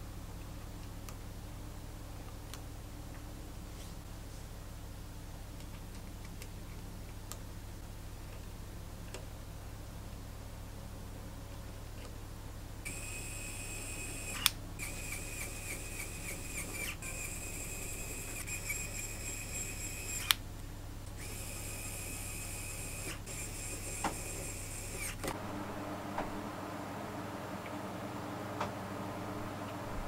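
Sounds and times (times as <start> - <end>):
electric screwdriver motor whining: 12.9 - 20.4, 21.2 - 25.4
sharp clicks: 14.2 - 18.8.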